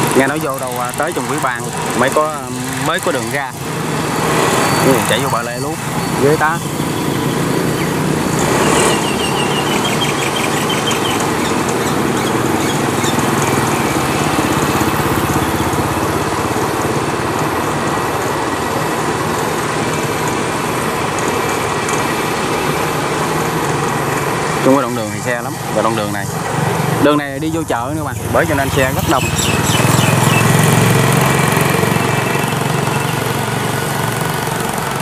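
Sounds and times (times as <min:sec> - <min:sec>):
combine harvester diesel engine: 0:00.0 - 0:35.0
motorbike engines passing: 0:00.0 - 0:35.0
high-pitched chirping: 0:04.1 - 0:14.5, 0:28.1 - 0:30.8.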